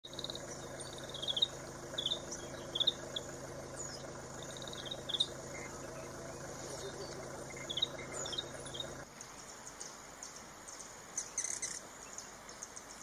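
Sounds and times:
rapid falling chirps: 0:00.1 - 0:09.0.

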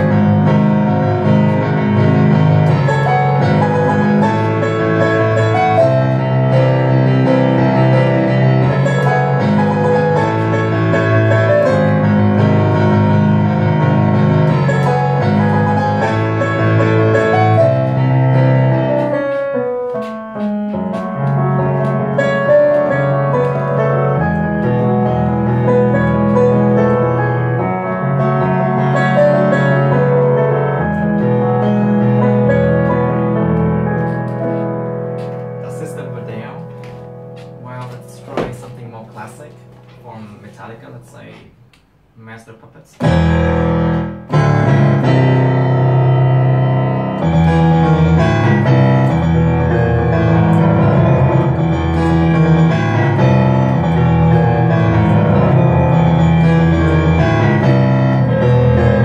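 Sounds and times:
fast piano playing: 0:00.0 - 0:41.7, 0:43.0 - 0:59.0.

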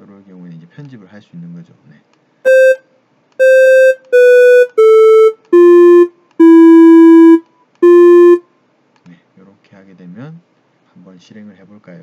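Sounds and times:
square-wave melody beeps: 0:02.5 - 0:02.8, 0:03.4 - 0:08.4.

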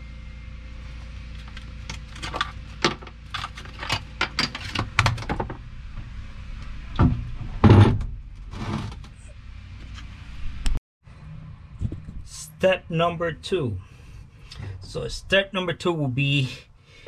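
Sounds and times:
thump: 0:07.0 - 0:08.2.

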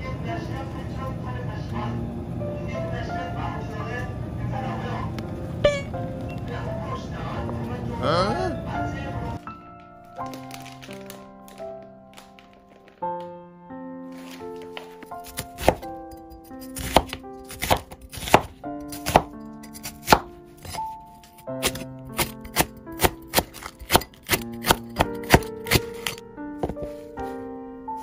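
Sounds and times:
knife chopping on wooden board: 0:15.2 - 0:15.9, 0:16.5 - 0:27.0.

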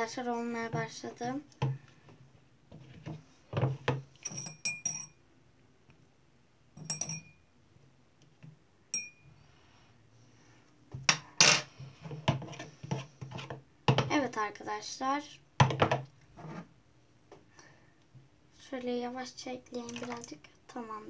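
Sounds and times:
metal spoon clinking on glass: 0:04.2 - 0:05.2, 0:06.8 - 0:07.4, 0:08.9 - 0:09.2.

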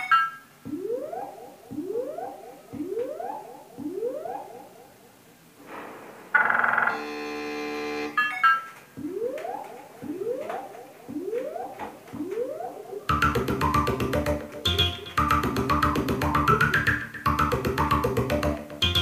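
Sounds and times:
fast electronic beat: 0:13.1 - 0:19.0.

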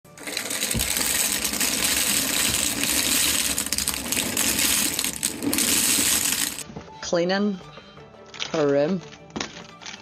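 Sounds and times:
plastic sticks clattering out of box: 0:00.1 - 0:06.6.

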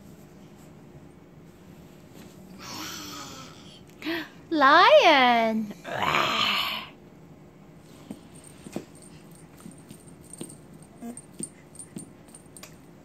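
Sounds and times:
breathy voice sound: 0:05.8 - 0:07.0.

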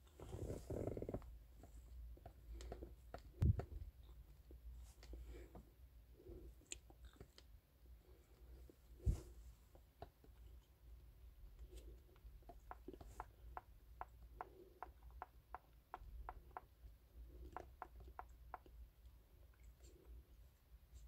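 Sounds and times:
faint low rumble: 0:00.0 - 0:16.0.

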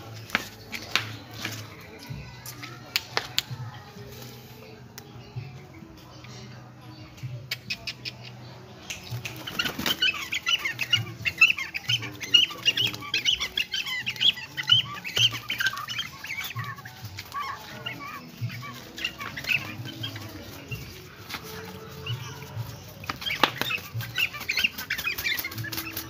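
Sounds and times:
cormorant squeaky chattering calls: 0:09.1 - 0:26.0.

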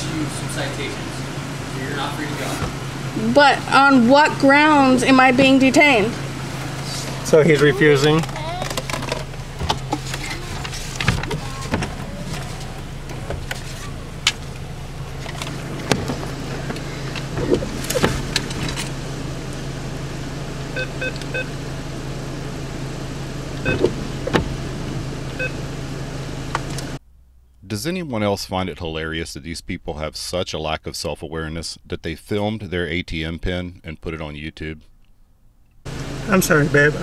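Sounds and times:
steady low hum: 0:00.0 - 0:37.0
clicks: 0:26.5 - 0:27.6.

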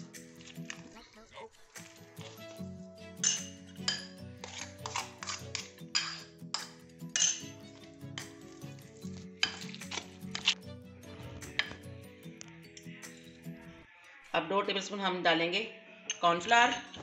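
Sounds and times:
soft background music: 0:00.0 - 0:17.0
masher scraping glass bowl: 0:03.2 - 0:10.6.

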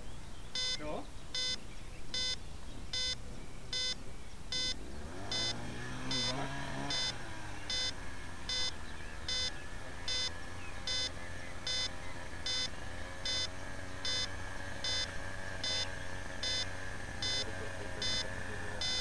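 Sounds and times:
faint hum: 0:00.0 - 0:05.5, 0:06.1 - 0:19.0
electronic beeper beeping: 0:00.6 - 0:00.8, 0:01.4 - 0:01.6, 0:02.2 - 0:08.7, 0:09.3 - 0:10.3, 0:10.9 - 0:11.1, 0:11.7 - 0:11.9, 0:12.5 - 0:19.0.

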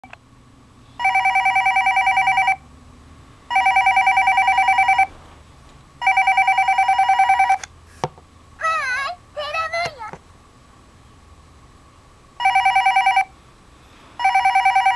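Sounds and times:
toy phone electronic ringing: 0:01.0 - 0:02.6, 0:03.5 - 0:05.1, 0:06.0 - 0:07.6, 0:12.4 - 0:13.3, 0:14.2 - 0:14.9.

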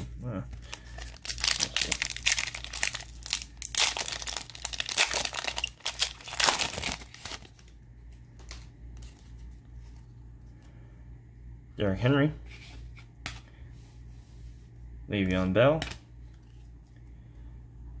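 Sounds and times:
cards rustling and clicking: 0:00.5 - 0:10.2
plastic wrapper crinkling and tearing: 0:00.6 - 0:07.8.

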